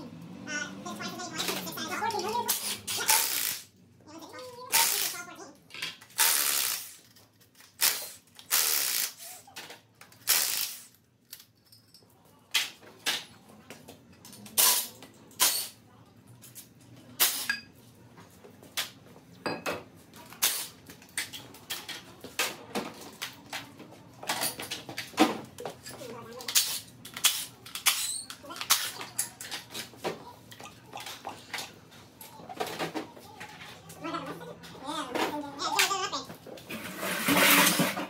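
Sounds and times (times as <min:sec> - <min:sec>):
impact wrench bursts: 0:02.6 - 0:03.7, 0:06.2 - 0:07.0, 0:07.8 - 0:09.3, 0:10.2 - 0:10.9.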